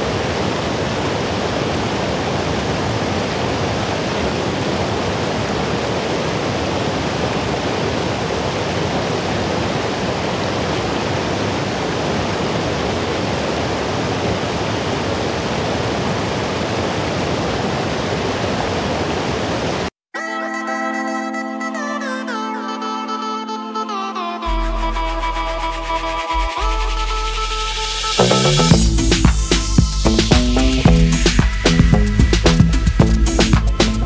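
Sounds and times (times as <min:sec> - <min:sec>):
river rushing over rocks: 0:00.0 - 0:19.9
music: 0:20.2 - 0:34.0.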